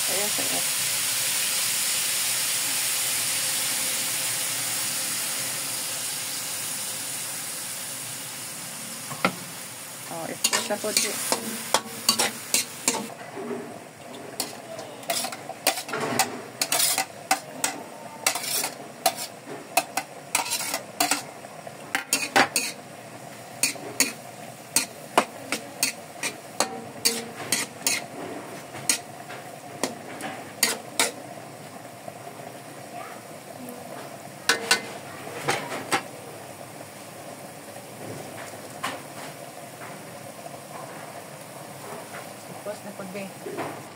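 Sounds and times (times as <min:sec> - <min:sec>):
sauce sizzling in wok: 0:00.0 - 0:43.9
metal spatula scraping wok: 0:10.4 - 0:21.3, 0:21.9 - 0:22.8, 0:23.6 - 0:31.2.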